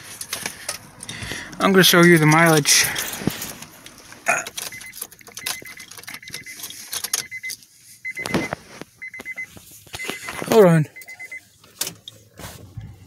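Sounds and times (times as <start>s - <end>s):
keys jangling and clicking: 4.4s - 7.5s
faint high electronic beeps: 7.2s - 11.4s.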